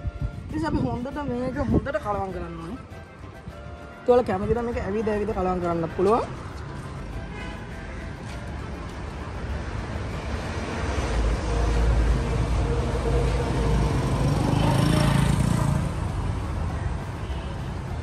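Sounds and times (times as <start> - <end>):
street traffic noise: 0.0 - 18.0
motorcycle engine passing: 13.3 - 16.1.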